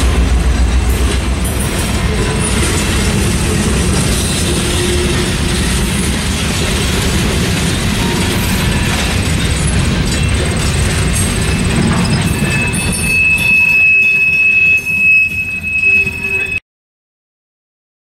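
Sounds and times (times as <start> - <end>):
freight cars rumbling on rails: 0.0 - 16.6
high-pitched wheel squeal: 11.2 - 16.6.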